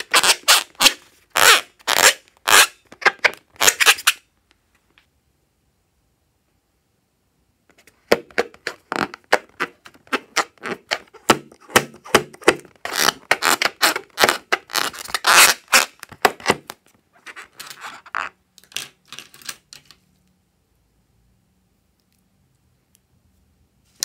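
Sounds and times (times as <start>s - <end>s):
hands rubbing and tapping a balloon: 7.7s - 18.3s.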